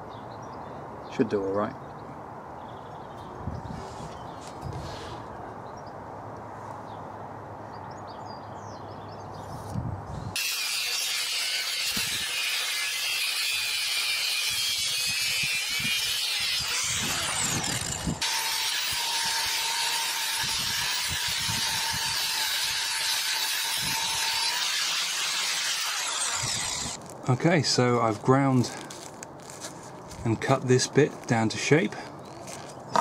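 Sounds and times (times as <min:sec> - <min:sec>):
angle grinder cutting steel: 0:10.4 - 0:27.0.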